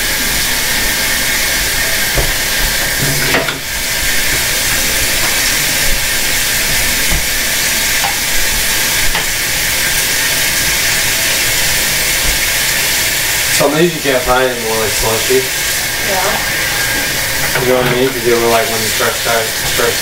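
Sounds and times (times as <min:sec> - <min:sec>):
loud steady hiss: 0:00.0 - 0:20.0.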